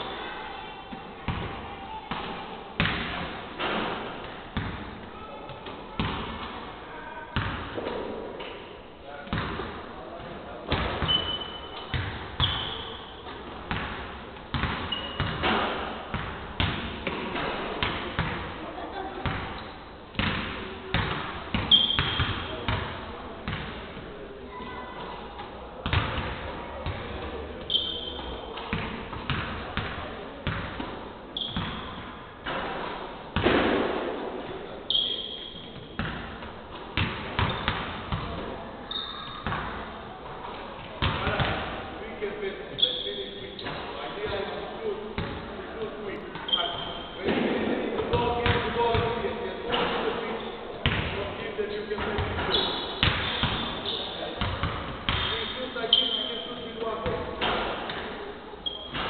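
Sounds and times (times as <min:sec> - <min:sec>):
sneakers squeaking on floor: 0:10.7 - 0:18.4, 0:19.2 - 0:22.9, 0:24.6 - 0:33.6, 0:34.8 - 0:39.8, 0:42.7 - 0:44.5, 0:46.2 - 0:47.3, 0:48.0 - 0:51.1, 0:51.8 - 0:59.0
shoes squeaking on floor: 0:11.0 - 0:13.4, 0:14.8 - 0:15.5, 0:21.6 - 0:22.5, 0:27.6 - 0:28.7, 0:31.4 - 0:32.1, 0:34.9 - 0:36.0, 0:38.9 - 0:39.4, 0:42.7 - 0:44.0, 0:46.3 - 0:47.2, 0:52.4 - 0:54.4, 0:55.2 - 0:56.8, 0:58.6 - 0:59.0
basketballs bouncing on hardwood: 0:13.7 - 0:18.4, 0:48.1 - 0:49.1, 0:54.4 - 0:55.3.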